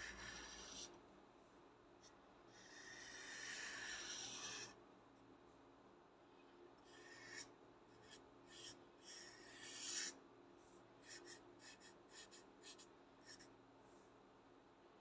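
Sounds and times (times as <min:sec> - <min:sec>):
marker scratching on paper: 0:00.0 - 0:00.9, 0:02.6 - 0:04.8, 0:06.9 - 0:10.2, 0:11.0 - 0:13.5.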